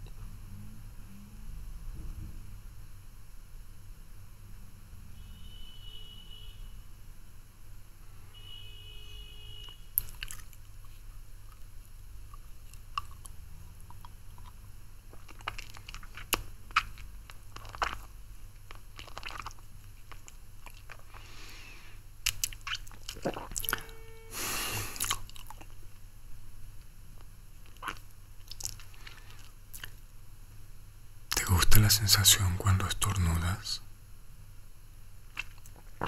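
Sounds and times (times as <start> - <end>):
man sucking on lollipop: 12.3 - 21.6, 22.2 - 25.7.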